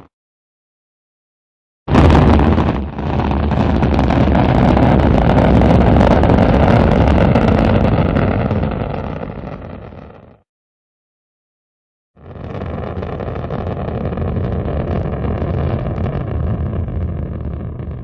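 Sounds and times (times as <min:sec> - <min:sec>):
rocket engine rumble: 0:01.9 - 0:10.2, 0:12.2 - 0:18.0.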